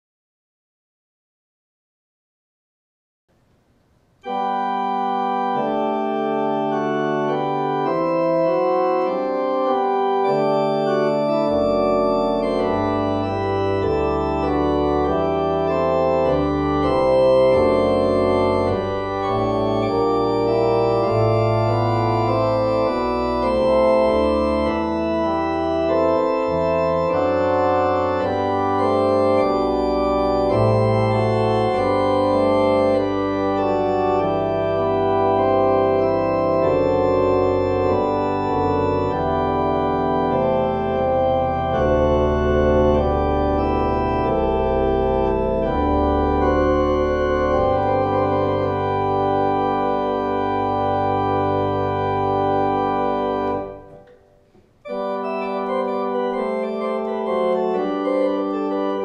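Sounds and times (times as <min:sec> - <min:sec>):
organ chords: 0:03.7 - 0:59.0
organ pedal bass line: 0:04.2 - 0:59.0.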